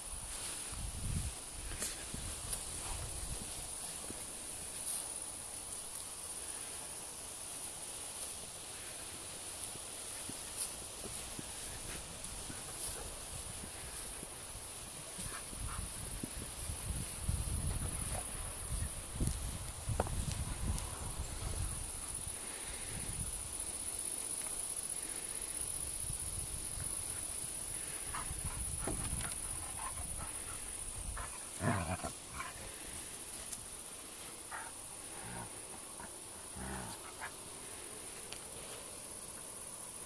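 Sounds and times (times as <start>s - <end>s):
rustling on grass: 0.0s - 40.0s
steady high hiss: 0.0s - 40.0s
dogs play-growling: 29.2s - 32.8s, 34.5s - 37.3s.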